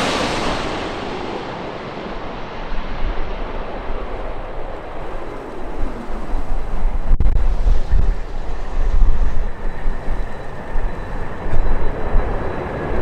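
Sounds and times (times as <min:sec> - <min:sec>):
jet airliner engine rumble: 0:00.0 - 0:13.0.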